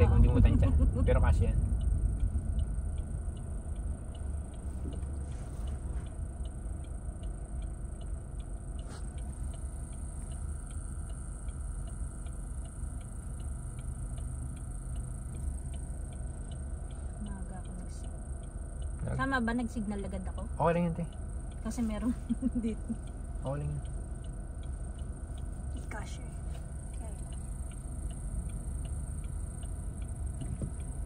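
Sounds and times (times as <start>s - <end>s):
engine and road hum: 0.0s - 31.0s
turn signal clicking: 0.0s - 31.0s.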